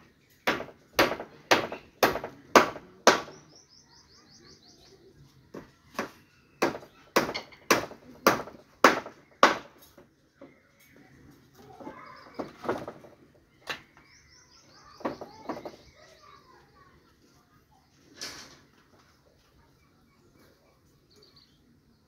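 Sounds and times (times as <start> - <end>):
hand tool striking wooden planks: 0.4 - 3.4, 5.9 - 10.1.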